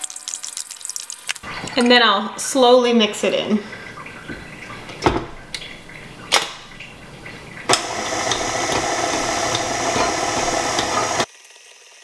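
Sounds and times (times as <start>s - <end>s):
kitchen things knocking: 3.8s - 11.2s
electric mixer running: 3.8s - 11.3s.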